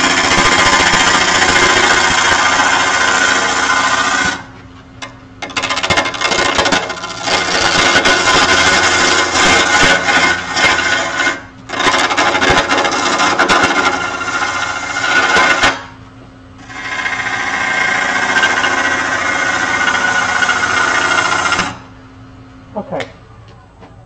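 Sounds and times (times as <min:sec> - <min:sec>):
turning tool scraping wood: 0:00.0 - 0:16.0, 0:16.6 - 0:21.8
wood lathe humming: 0:00.0 - 0:16.0, 0:16.6 - 0:21.9.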